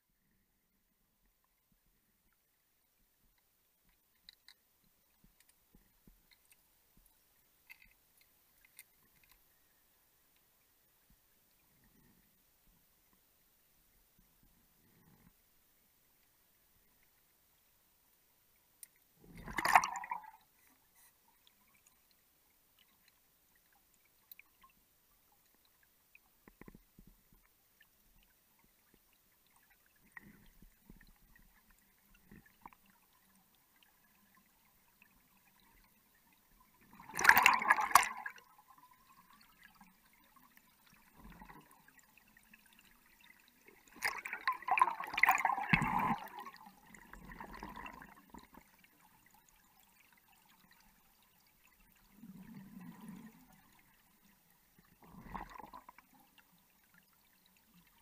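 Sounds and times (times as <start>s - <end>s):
faint ticks and low murmurs: 0.0s - 19.5s, 20.3s - 37.2s, 38.2s - 44.6s, 46.2s - 58.0s
underwater bubbles gurgling: 19.2s - 20.7s, 26.4s - 58.0s.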